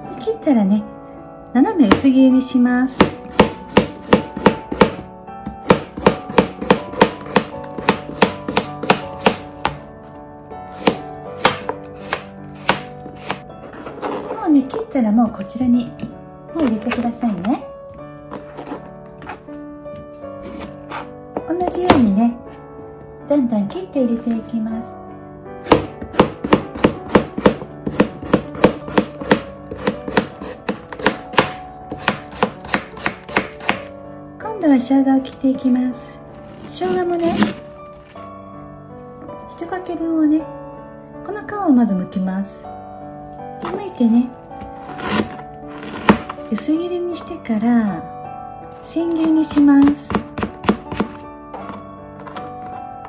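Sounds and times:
knife slicing on cutting board: 10.7s - 14.3s, 20.4s - 21.1s, 44.8s - 46.3s.

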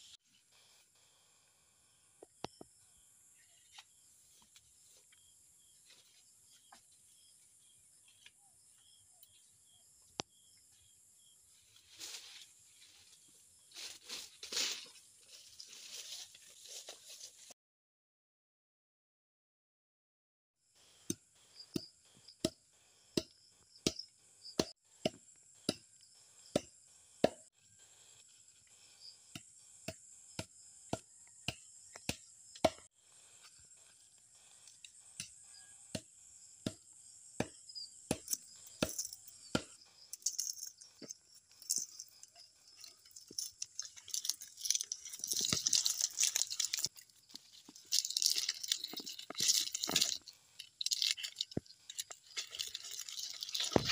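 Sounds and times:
rustling and crackling of leaves: 11.6s - 17.5s, 40.2s - 53.9s.

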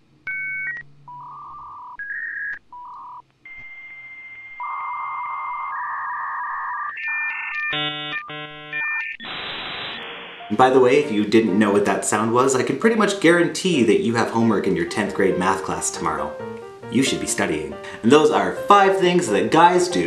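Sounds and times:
dial-up modem tones: 0.3s - 10.5s
modem hiss with whistle: 1.1s - 11.1s
fast buzzy modem chords: 4.3s - 11.8s.

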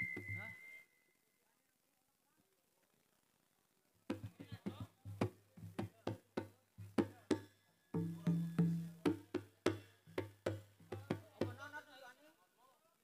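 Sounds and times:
traditional percussion music: 4.1s - 11.7s.

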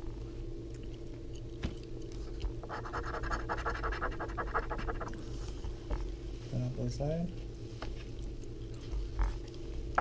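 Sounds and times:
coin scratching lottery ticket: 2.7s - 5.2s.

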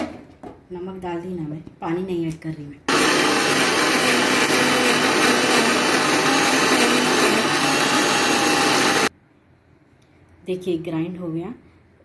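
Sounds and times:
mixer grinder running: 2.9s - 9.1s.

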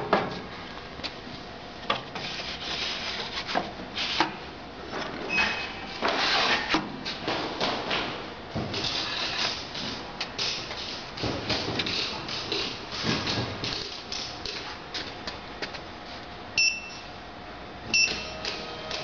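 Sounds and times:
short electronic beep: 16.6s - 17.0s, 17.9s - 18.4s.

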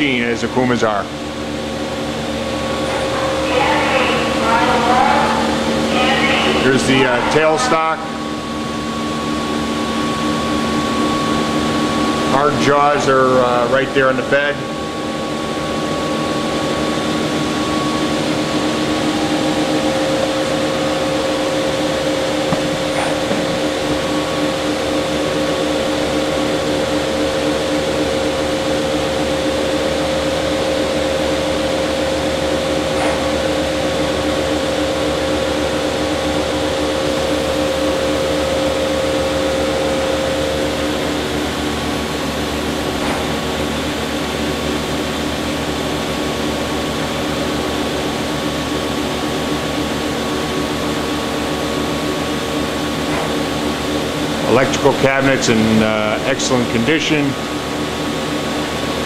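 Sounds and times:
machine hum with held tones: 0.0s - 59.0s.

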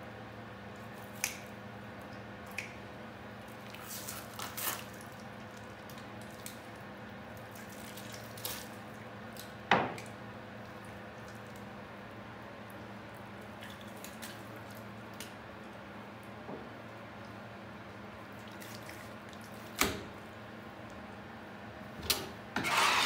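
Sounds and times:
wet squelching: 3.4s - 11.7s, 13.4s - 15.4s, 18.2s - 19.8s.

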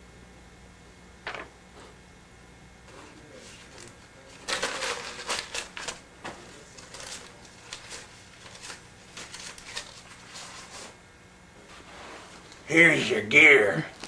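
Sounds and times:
crinkling and rustling objects: 2.9s - 11.0s.

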